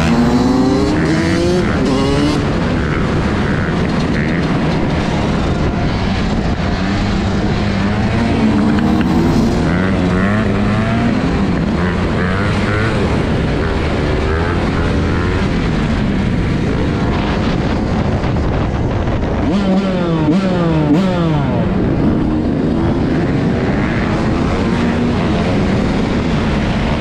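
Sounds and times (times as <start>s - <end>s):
motorcycle engines revving: 0.0s - 27.0s.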